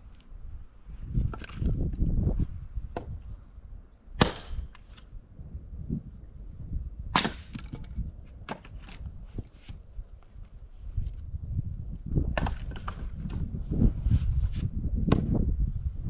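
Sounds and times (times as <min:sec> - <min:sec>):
sharp wooden cracks and knocks: 0:01.2 - 0:01.8, 0:04.2 - 0:05.1, 0:07.1 - 0:09.1, 0:12.3 - 0:13.4, 0:15.1 - 0:15.3
axe splitting firewood: 0:04.2 - 0:05.0, 0:07.1 - 0:09.7.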